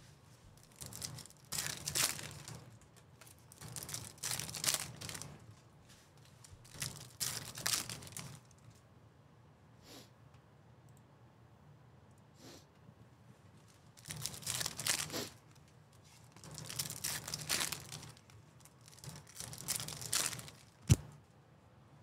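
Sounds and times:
card pack wrappers tearing: 0.6 - 5.4, 6.6 - 8.6, 14.0 - 15.4, 16.3 - 21.1.

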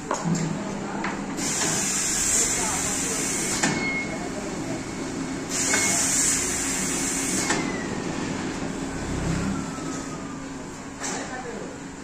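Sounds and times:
compressed air hiss: 1.4 - 3.6, 5.5 - 7.5.

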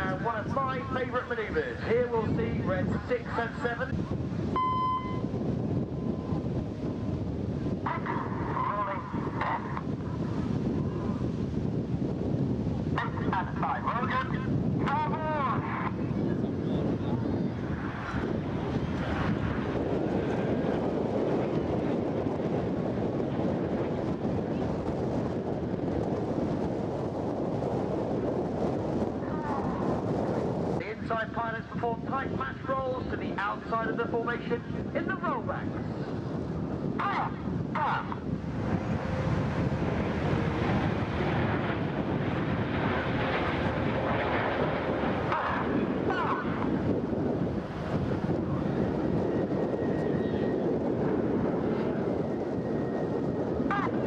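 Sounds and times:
jet aircraft rumble: 0.0 - 54.0
wind on microphone: 0.0 - 54.0
jets flying past: 38.1 - 49.1.

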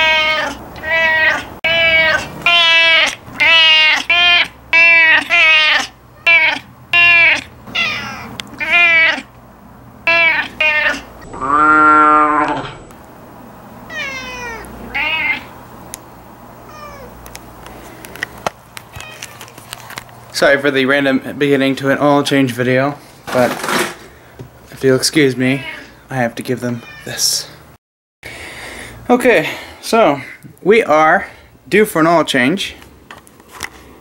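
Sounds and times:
cat meowing: 0.0 - 9.3, 10.0 - 12.7, 13.9 - 15.5, 16.6 - 17.2, 25.5 - 26.0, 26.8 - 27.2.

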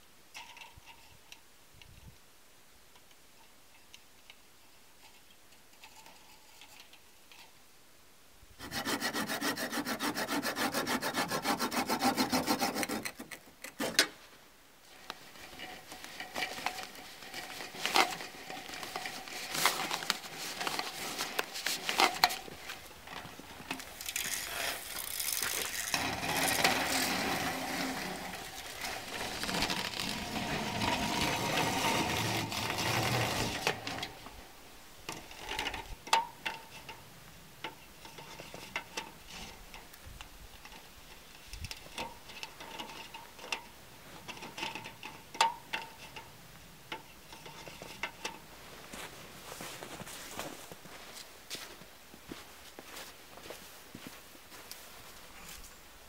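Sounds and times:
aluminium duct crinkling: 12.8 - 34.5.

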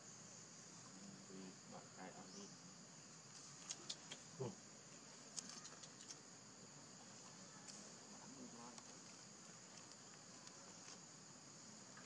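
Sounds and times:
insects droning: 0.0 - 12.0
faint ticks: 5.2 - 6.2, 8.6 - 11.1.

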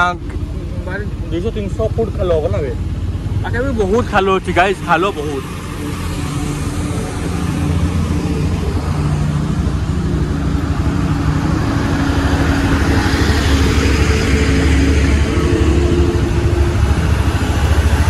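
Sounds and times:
motorcycle engine drone: 0.0 - 18.0
road and wind noise: 0.0 - 18.0
truck passing: 0.0 - 18.0.

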